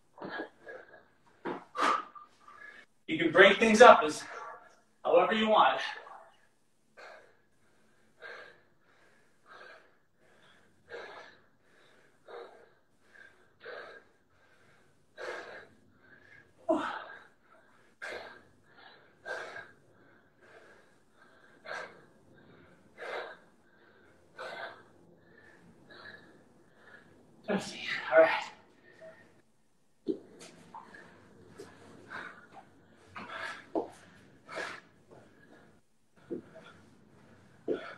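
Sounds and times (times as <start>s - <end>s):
man breathing hard: 7.0s - 27.4s, 30.2s - 37.9s.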